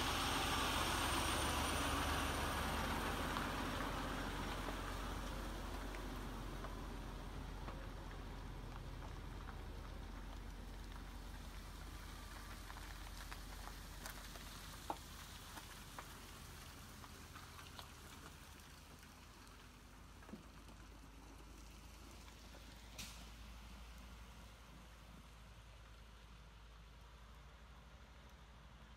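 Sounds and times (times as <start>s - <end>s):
truck engine rumble: 0.0s - 28.9s
tyres crunching on gravel: 1.2s - 23.0s.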